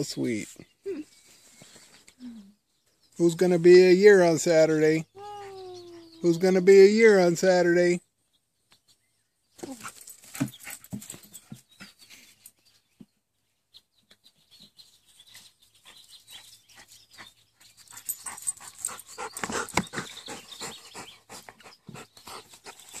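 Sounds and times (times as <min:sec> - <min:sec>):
puppy panting: 0:15.9 - 0:23.0.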